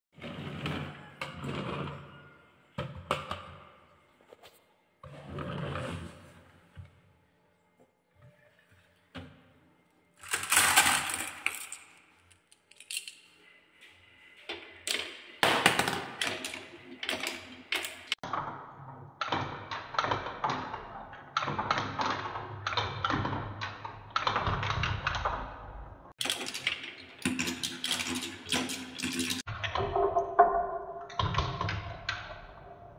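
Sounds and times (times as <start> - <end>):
marbles rattling on wooden tracks: 10.2 - 12.0.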